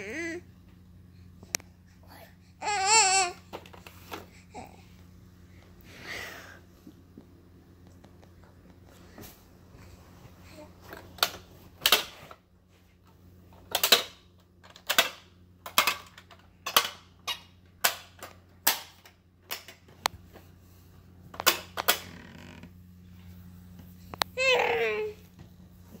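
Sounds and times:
plastic toy snaps and clicks: 13.7 - 17.0, 17.8 - 19.8.

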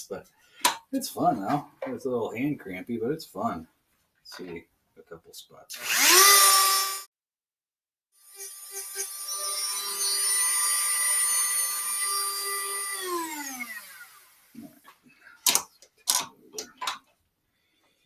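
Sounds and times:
rotary tool whining: 5.7 - 7.1, 8.2 - 14.6
rotary tool spinning down: 5.8 - 7.1, 9.0 - 14.3
knocks and clicks of tool handling: 14.6 - 17.2.

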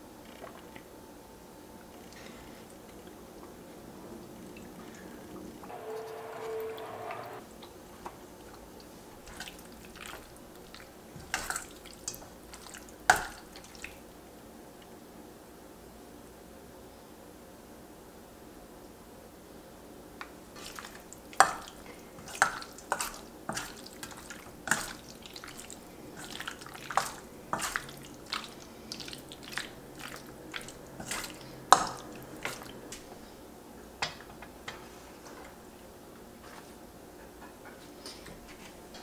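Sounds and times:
wet stirring sounds: 1.9 - 14.2, 20.2 - 33.4.

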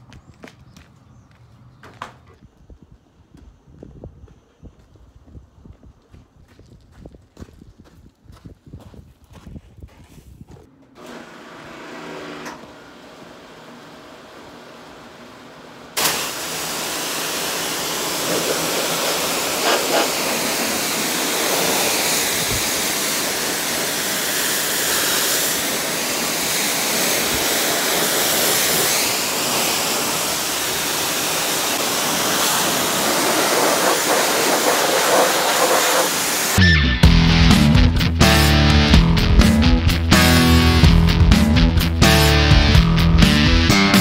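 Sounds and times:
pressure washer spray hissing: 16.0 - 36.6.

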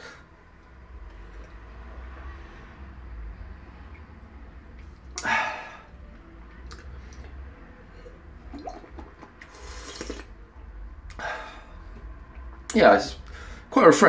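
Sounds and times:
person sipping water: 8.0 - 10.3
person breathing: 13.2 - 13.7.

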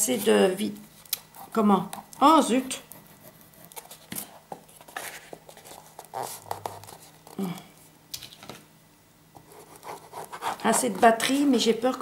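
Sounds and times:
cardboard and paper rustling: 3.5 - 7.4.

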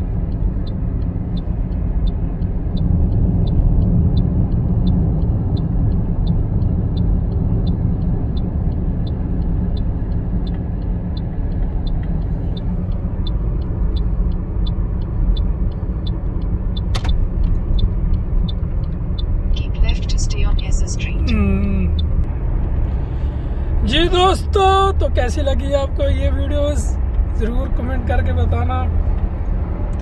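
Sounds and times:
light even ticking: 0.0 - 23.0, 23.7 - 30.0
engine and tyre rumble: 0.0 - 30.0
sharp click: 16.8 - 17.6.

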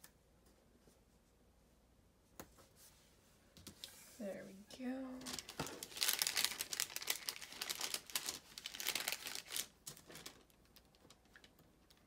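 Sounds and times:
paper crinkling and rustling: 5.1 - 12.0.

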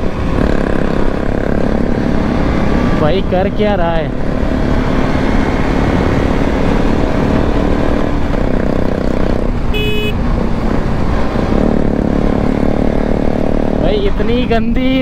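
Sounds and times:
motorcycle engine running: 0.0 - 14.0
short horn beep: 9.7 - 10.2.

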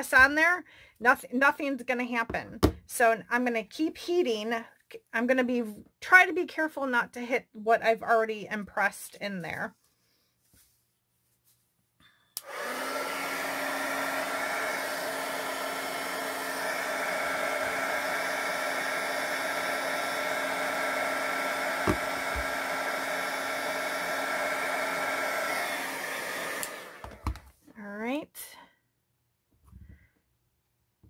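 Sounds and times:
heat gun blowing: 12.4 - 27.4.

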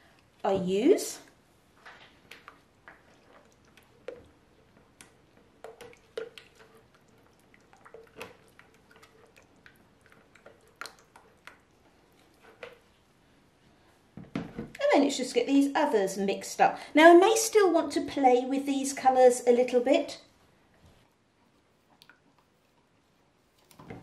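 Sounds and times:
wet squelching of stirred batter: 1.0 - 14.2.

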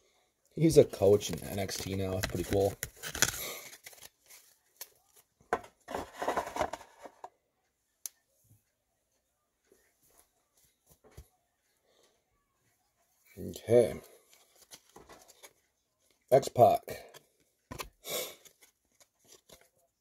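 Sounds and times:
trading cards rustling: 0.8 - 5.3, 5.9 - 7.2, 13.8 - 16.3, 17.1 - 20.0.

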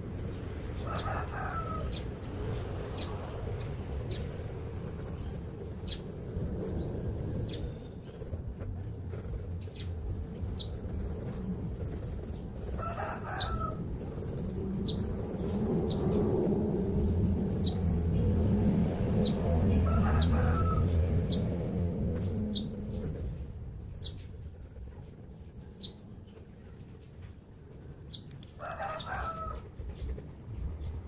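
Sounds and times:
low background rumble: 0.0 - 31.0
rooster crowing: 0.8 - 2.0, 12.7 - 13.9, 19.6 - 21.4, 28.6 - 29.7.

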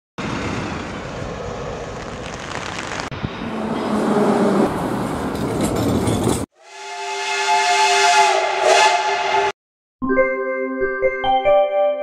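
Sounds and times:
street traffic: 0.2 - 6.5
steam locomotive whistle: 6.6 - 9.6.

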